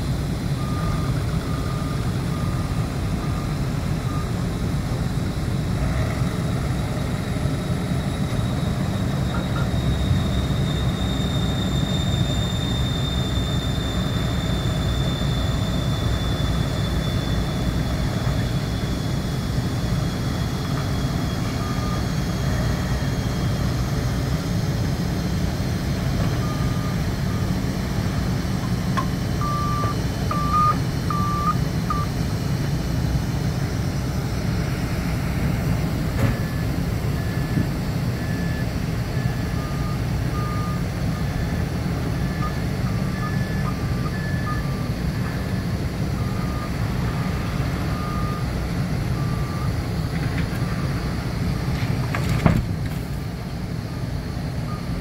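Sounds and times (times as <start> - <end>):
diesel engines of heavy machinery: 0.0 - 55.0
low warning beep: 0.4 - 25.4, 26.0 - 32.5, 36.0 - 51.0, 54.6 - 55.0
high warning beep: 0.6 - 4.4, 7.7 - 18.4, 26.3 - 27.6, 28.6 - 32.2, 36.3 - 41.6, 42.2 - 46.8.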